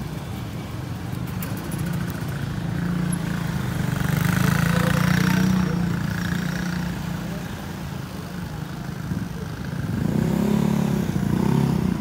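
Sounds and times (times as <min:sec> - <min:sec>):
motor scooter engine running: 0:01.5 - 0:07.1.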